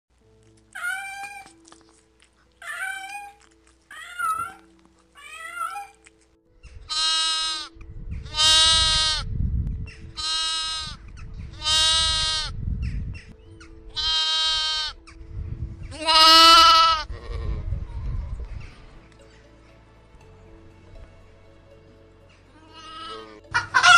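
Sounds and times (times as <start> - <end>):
faint background music: 0.1 - 23.9
cat meowing: 2.6 - 6.0
lamb bleating: 2.6 - 6.0, 6.9 - 7.7, 8.3 - 9.3, 10.2 - 12.6, 13.9 - 15.0, 15.9 - 18.5, 22.5 - 23.9
low rumble: 9.2 - 10.2, 15.2 - 16.0.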